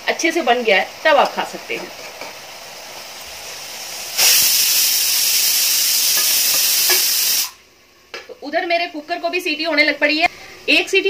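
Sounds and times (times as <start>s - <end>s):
pressure cooker whistling: 4.0s - 7.6s.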